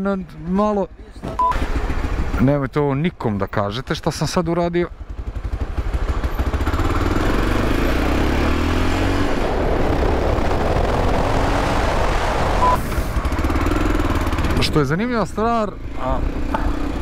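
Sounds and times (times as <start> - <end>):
motorcycle engine accelerating: 4.9 - 17.0.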